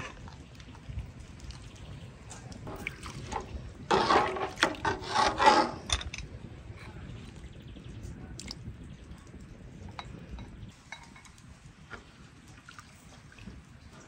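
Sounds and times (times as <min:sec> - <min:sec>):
metal spoon scraping pot: 0:02.7 - 0:06.2.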